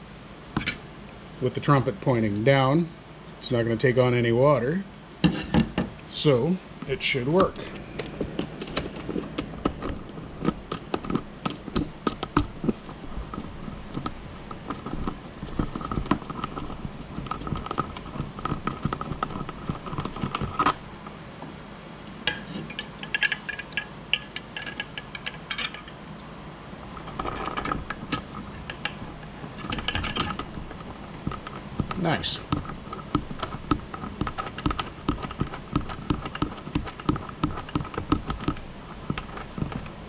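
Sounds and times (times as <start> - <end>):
metal clinks and knocks: 8.8 - 20.8, 21.9 - 26.1, 26.9 - 40.0.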